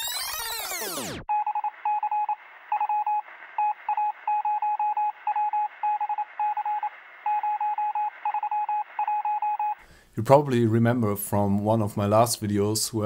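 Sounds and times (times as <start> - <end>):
morse code beeps: 1.3 - 9.8.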